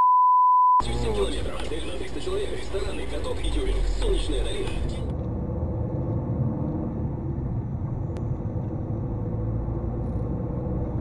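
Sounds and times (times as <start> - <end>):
car interior engine rumble: 0.8 - 6.4.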